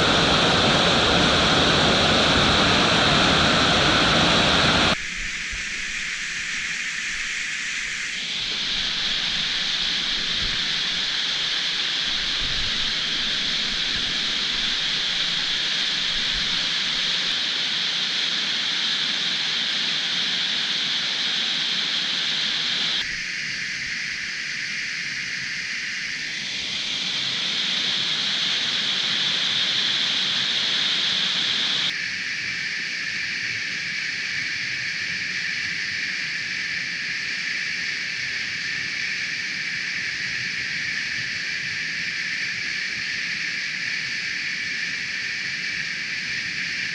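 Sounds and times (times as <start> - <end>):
stream rushing water: 0.0 - 5.0.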